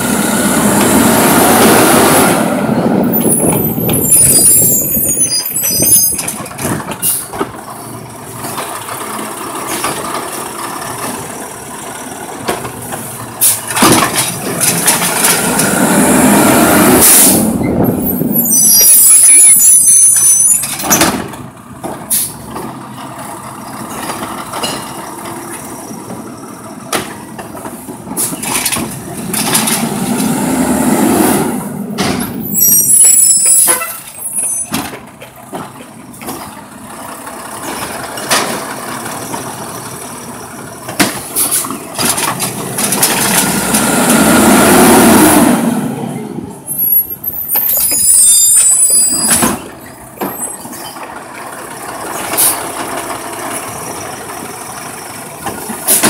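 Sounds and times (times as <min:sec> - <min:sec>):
garbage truck engine revving: 0:00.0 - 0:05.1, 0:06.2 - 0:26.8, 0:27.6 - 0:33.3, 0:34.8 - 0:48.2
air brakes hissing: 0:12.8 - 0:13.7, 0:17.0 - 0:17.6, 0:22.1 - 0:22.5, 0:41.2 - 0:41.8.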